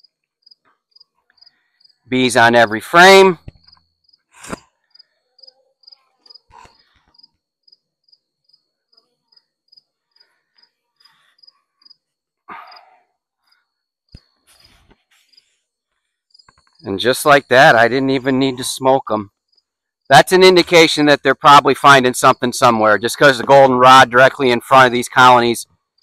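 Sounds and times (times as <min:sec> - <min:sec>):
insect chirping: 0:00.0 - 0:02.0, 0:03.5 - 0:12.8, 0:16.3 - 0:17.6, 0:19.4 - 0:20.0
scraping thump: 0:04.4 - 0:04.7.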